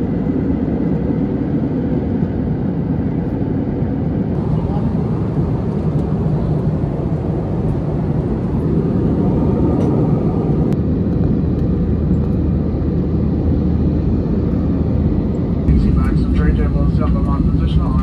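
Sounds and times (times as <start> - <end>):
jet engines rumbling in cabin: 0.0 - 18.0
low hum: 0.0 - 18.0.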